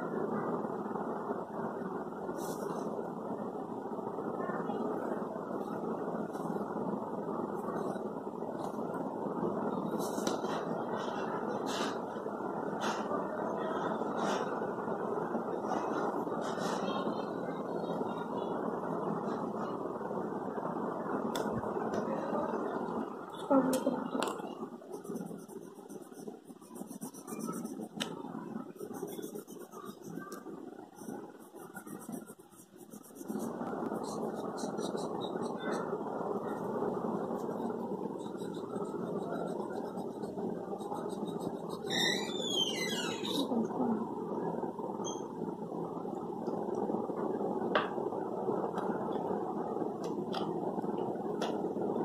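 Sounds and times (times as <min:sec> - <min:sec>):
low background hum: 0:00.0 - 0:52.0
pen scratching on paper: 0:24.9 - 0:28.1, 0:28.7 - 0:43.4.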